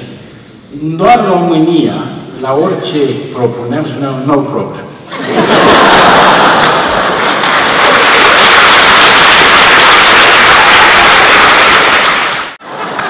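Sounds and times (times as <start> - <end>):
audience laughter: 5.0 - 8.4, 12.6 - 13.0
audience applauding: 5.6 - 13.0.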